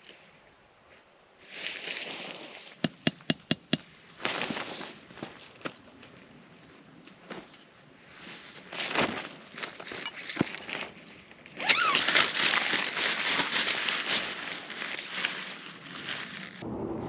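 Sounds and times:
rustling and crackling handling: 4.2s - 16.6s.

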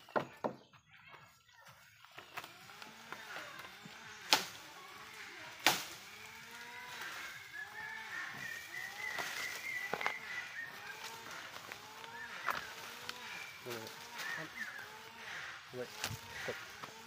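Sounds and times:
leaves rustling: 1.8s - 17.0s
bamboo stems creaking: 2.0s - 17.0s
bamboo cracking sharply: 4.2s - 4.8s, 5.5s - 7.2s, 8.4s - 10.3s.

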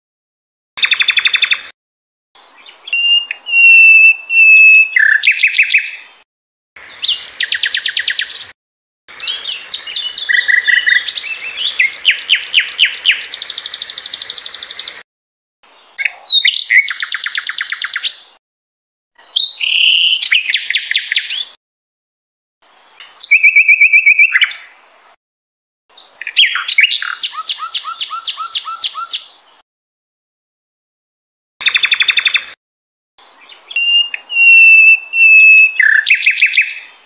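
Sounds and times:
bird song with trills: 0.8s - 1.8s, 2.4s - 6.2s, 6.8s - 15.0s, 15.7s - 18.4s, 19.2s - 21.6s, 23.0s - 24.8s, 25.9s - 29.4s, 31.6s - 32.6s, 33.2s - 37.0s
bird whistles: 2.8s - 6.0s, 16.0s - 18.2s, 19.2s - 21.6s, 23.1s - 24.7s, 26.2s - 29.3s, 33.7s - 36.9s.

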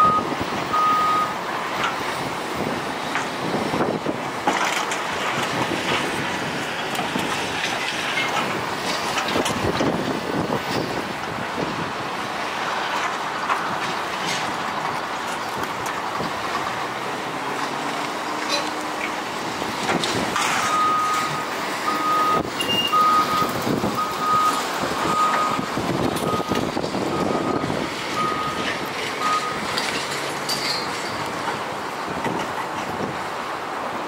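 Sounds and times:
backup alarm beeping: 0.0s - 1.4s, 20.7s - 29.7s
excavator engine under load: 0.0s - 34.0s.

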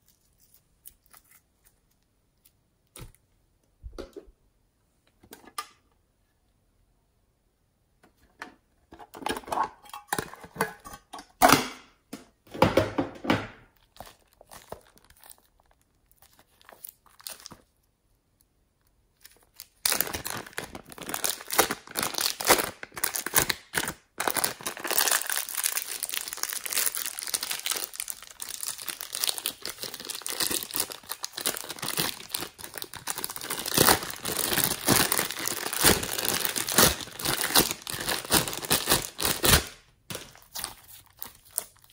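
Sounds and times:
plastic bag crinkling: 13.8s - 17.8s, 19.2s - 41.9s.

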